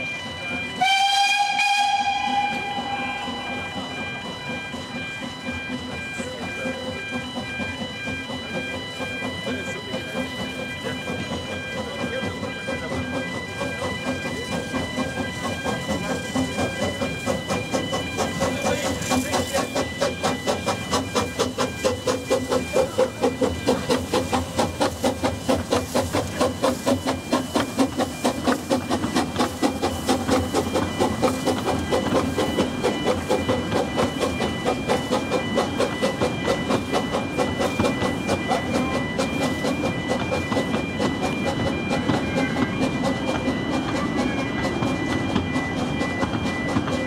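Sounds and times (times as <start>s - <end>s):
steam locomotive chuffing: 0.0s - 47.0s.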